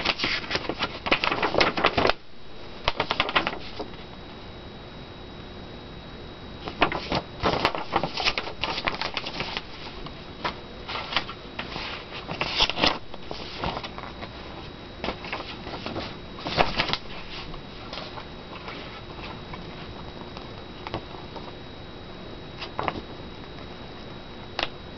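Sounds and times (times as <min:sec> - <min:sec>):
paper rustling and crinkling: 0:00.0 - 0:02.2, 0:02.8 - 0:04.1, 0:06.6 - 0:21.6, 0:22.6 - 0:23.7.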